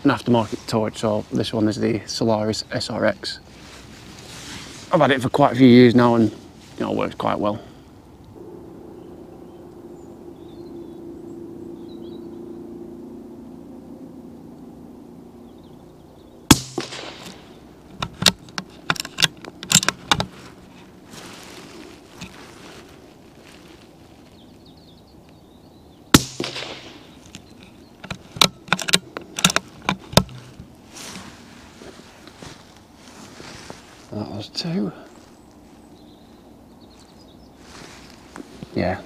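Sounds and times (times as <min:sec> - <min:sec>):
rifle shots: 0:16.5 - 0:17.6, 0:26.2 - 0:27.2.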